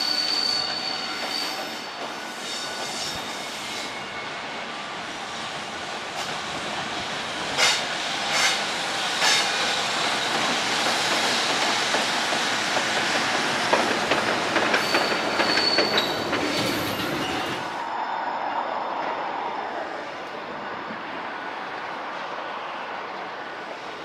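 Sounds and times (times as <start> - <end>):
high wheel squeal: 0.0 - 4.9, 14.7 - 21.0
train wheels clacking over rail joints: 7.6 - 17.4.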